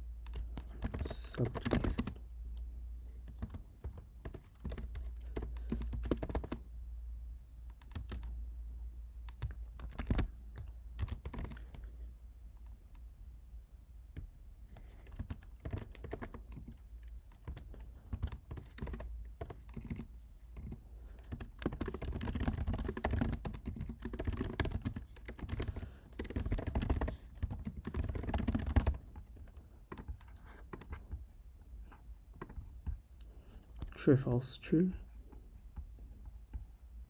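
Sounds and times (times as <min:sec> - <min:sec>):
typing on computer keyboard: 0:00.2 - 0:06.6, 0:07.7 - 0:08.4, 0:09.2 - 0:11.9, 0:14.2 - 0:31.2.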